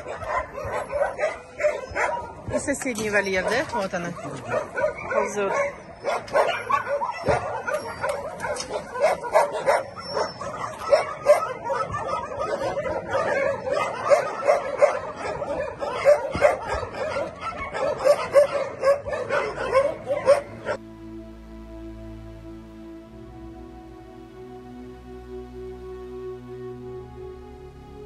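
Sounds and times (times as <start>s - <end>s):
dogs barking and yipping: 0.0s - 20.8s
soft music: 19.8s - 28.0s.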